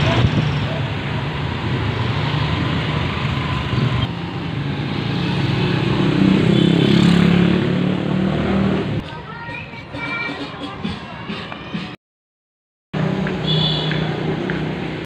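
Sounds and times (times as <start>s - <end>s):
street traffic: 0.0s - 12.0s, 13.0s - 15.0s
motorcycle passing: 0.8s - 9.0s.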